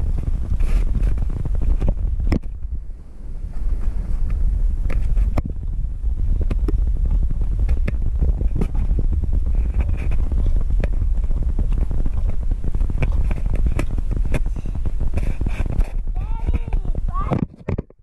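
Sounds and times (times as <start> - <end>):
bicycle rolling over concrete: 0.0 - 17.4
wind buffeting microphone: 0.0 - 18.0.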